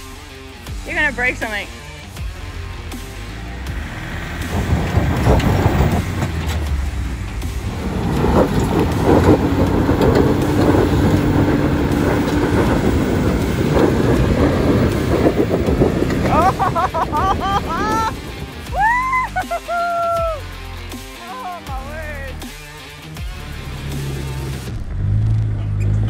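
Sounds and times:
car engine working hard: 0.0 - 26.0
tyres scrabbling in gravel: 3.8 - 18.7.

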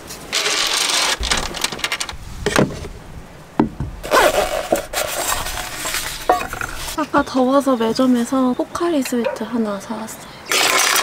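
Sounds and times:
objects picked up off wooden shelf: 4.6 - 7.0.

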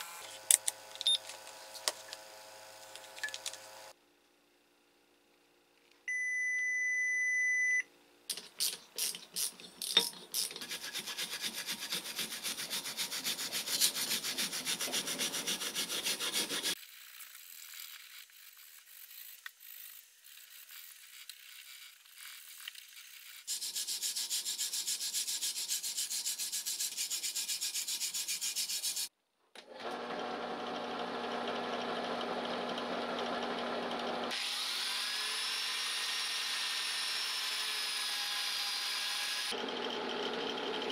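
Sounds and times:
multimeter beep: 6.1 - 7.9
machine motor running: 39.6 - 40.9.

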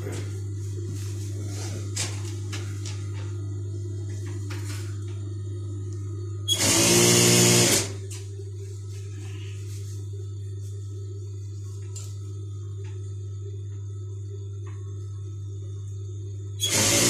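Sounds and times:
sewing machine motor humming: 6.5 - 8.0, 16.6 - 17.0
sewing machine stitching: 16.6 - 17.0.

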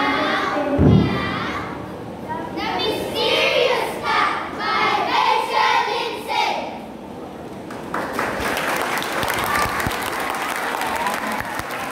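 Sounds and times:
children chanting in unison: 0.0 - 1.8, 2.6 - 6.8
audience applause: 7.7 - 11.9.

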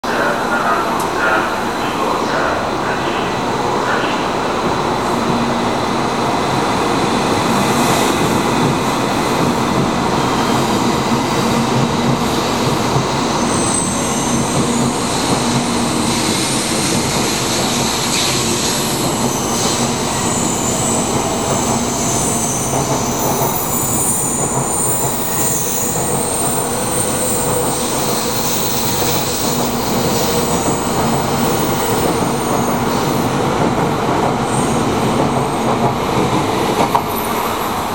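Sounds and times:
train wheels rumbling on rail: 0.1 - 37.9.

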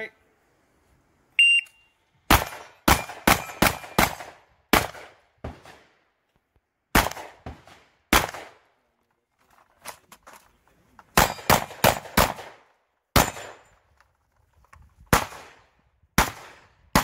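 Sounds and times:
handgun shots: 2.3 - 5.8.

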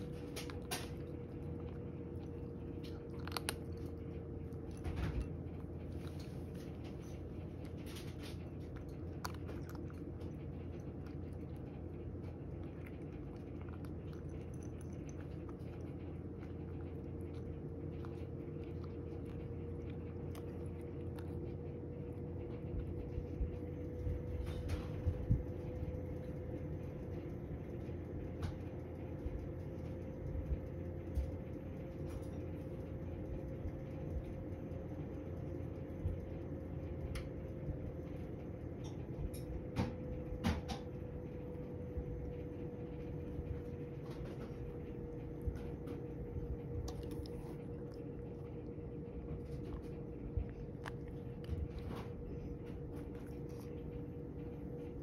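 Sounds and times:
cat crunching dry kibble: 0.0 - 27.2, 41.1 - 55.0
steady background hum: 0.0 - 55.0.

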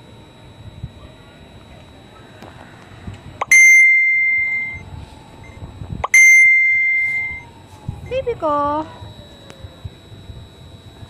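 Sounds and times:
small bell dinging: 3.4 - 4.8, 6.0 - 7.5.

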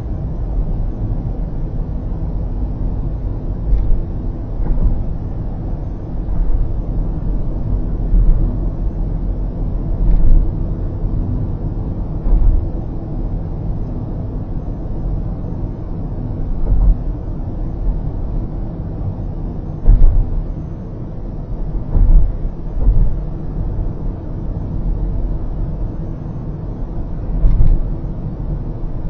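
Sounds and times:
car road rumble: 0.0 - 29.0
low thumps: 3.7 - 13.0, 16.5 - 17.2, 19.7 - 20.8, 21.4 - 24.0, 27.2 - 28.0.

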